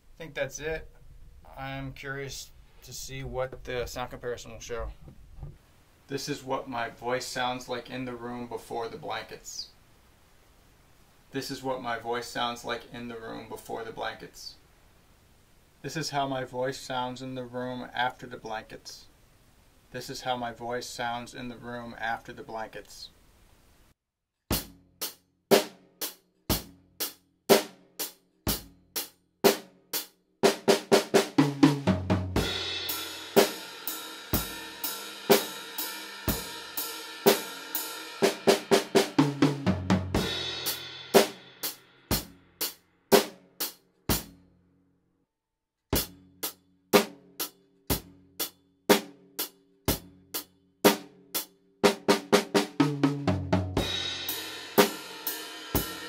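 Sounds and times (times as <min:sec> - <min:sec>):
drum beat with cymbals: 0:24.5 - 0:44.4, 0:46.0 - 0:56.0.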